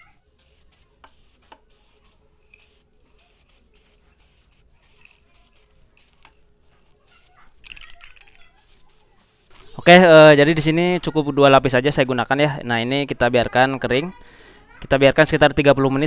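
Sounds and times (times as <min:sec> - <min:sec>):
aerosol spray can hissing: 0:00.2 - 0:09.8.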